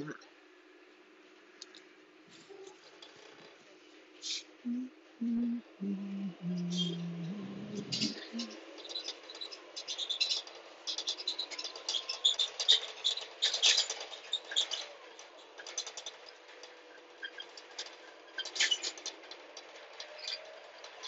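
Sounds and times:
faint steady hum: 0.0s - 10.8s.

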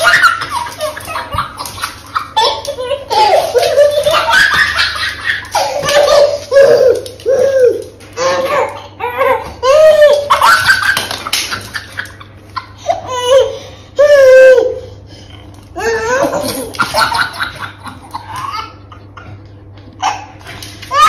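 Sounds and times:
high-pitched laughter: 0.0s - 14.7s.

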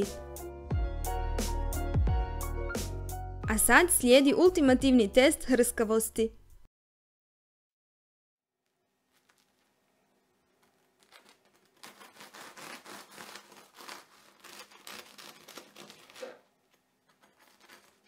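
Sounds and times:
bread knife sawing crusty loaf: 11.6s - 16.4s.

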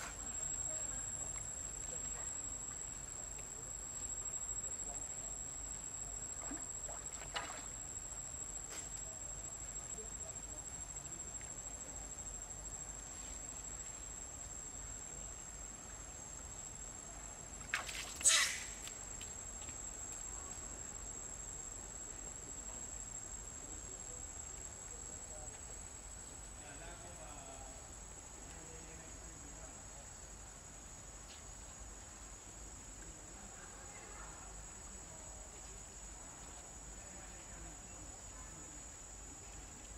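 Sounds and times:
insects calling: 4.2s - 12.9s, 17.6s - 23.2s.

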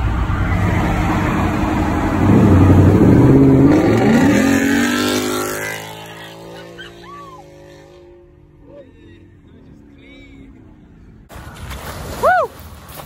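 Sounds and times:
car engine revving and accelerating: 0.2s - 8.3s.

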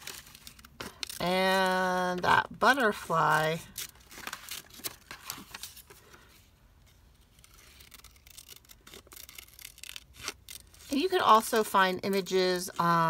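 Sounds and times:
scissors snipping paper: 7.4s - 11.4s.

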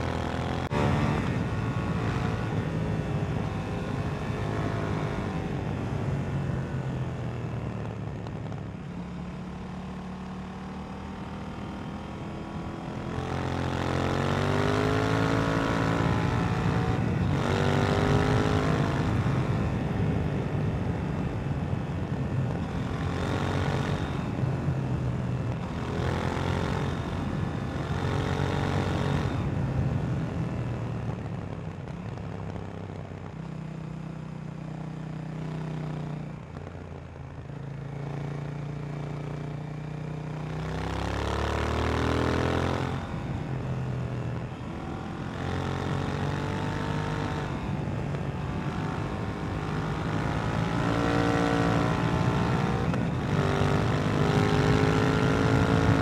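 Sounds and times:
motorcycle engine revving: 0.0s - 5.7s, 9.1s - 20.4s, 22.4s - 29.6s, 40.3s - 43.6s, 44.3s - 56.0s.

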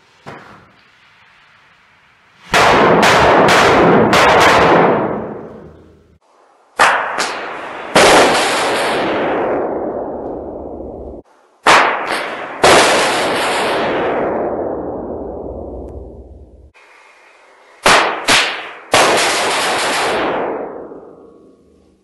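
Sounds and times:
firecracker bangs echoing: 2.5s - 6.2s, 6.8s - 10.8s, 11.6s - 15.4s, 17.8s - 21.6s.

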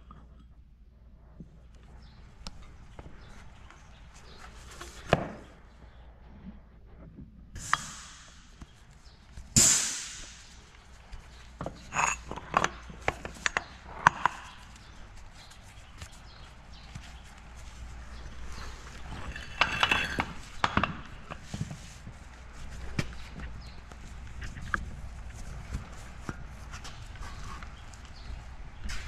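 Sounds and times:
metal clinks and knocks: 11.5s - 14.8s, 18.9s - 21.4s.

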